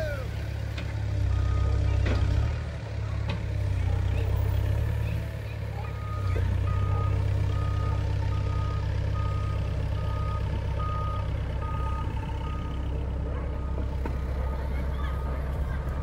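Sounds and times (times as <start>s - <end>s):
diesel engine droning: 0.0s - 16.0s.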